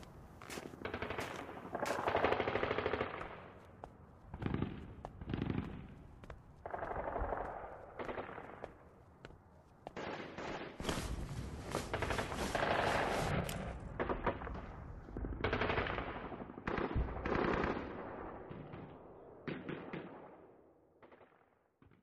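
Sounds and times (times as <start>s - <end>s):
machine-gun fire bursts: 0.8s - 3.5s.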